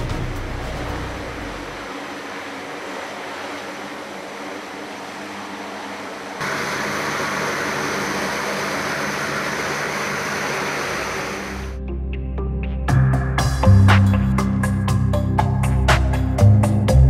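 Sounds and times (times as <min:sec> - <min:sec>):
aircraft propellers droning: 0:00.0 - 0:11.8.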